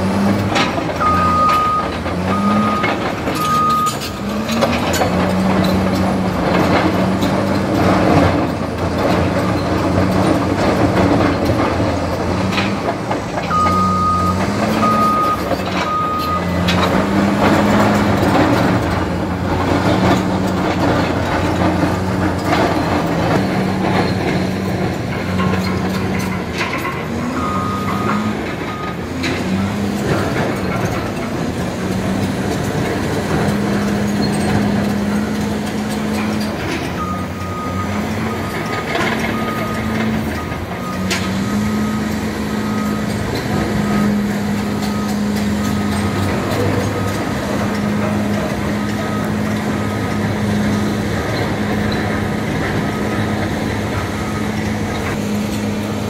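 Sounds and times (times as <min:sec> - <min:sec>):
heavy diesel engines working: 0:00.0 - 0:56.0
reversing alarm beeping: 0:01.0 - 0:04.2, 0:13.5 - 0:16.7, 0:27.4 - 0:29.0, 0:36.9 - 0:51.0, 0:52.7 - 0:55.2.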